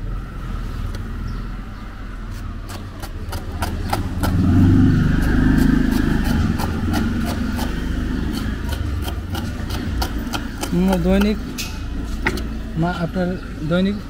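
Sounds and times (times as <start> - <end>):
vehicle engine passing: 0.0 - 13.2
knife chopping on wooden board: 2.6 - 4.6, 5.2 - 11.5.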